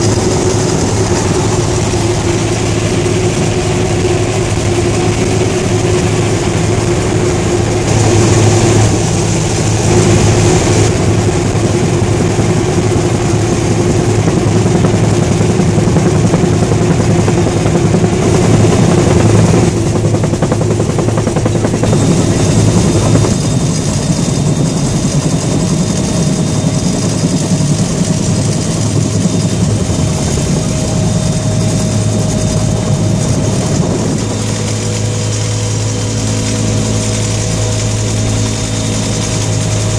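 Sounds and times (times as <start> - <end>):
helicopter engine and rotor drone: 0.0 - 39.9
thin steady whine: 0.0 - 39.9.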